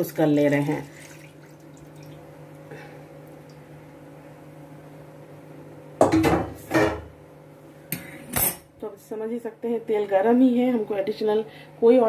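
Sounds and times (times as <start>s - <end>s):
low appliance hum: 0.0s - 12.0s
cookware clattering: 6.0s - 7.1s.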